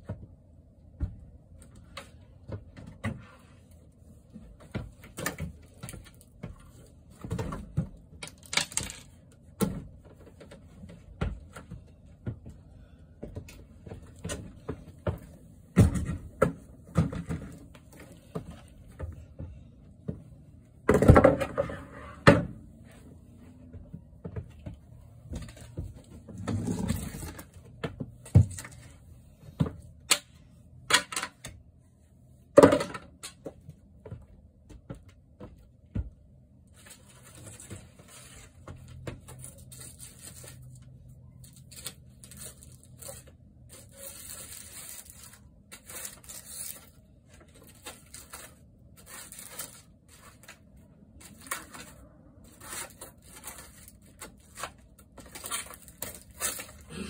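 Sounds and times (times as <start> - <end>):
wooden strips knocking and clattering: 7.2 - 11.8
scratchy rustling and scraping: 39.3 - 56.9.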